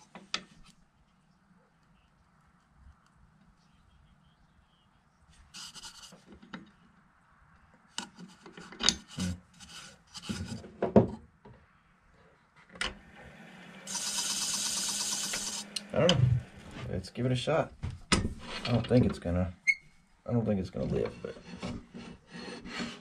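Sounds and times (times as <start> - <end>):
hand rubbing spinning wooden bowl: 5.6 - 6.2, 13.9 - 17.2
lathe humming: 12.9 - 17.0.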